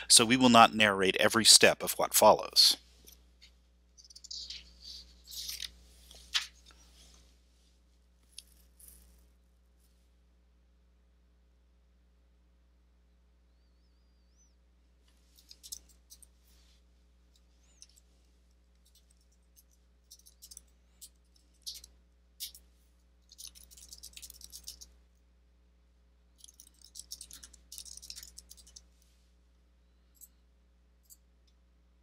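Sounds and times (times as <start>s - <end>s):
computer keyboard typing: 23.3s - 24.8s, 26.4s - 28.8s.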